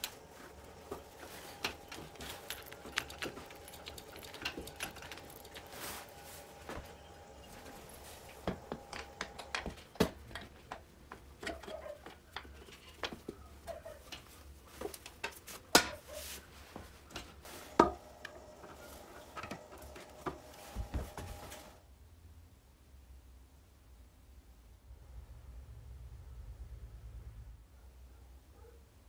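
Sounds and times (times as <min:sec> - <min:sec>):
gloved hands handling parts: 0:00.0 - 0:21.8.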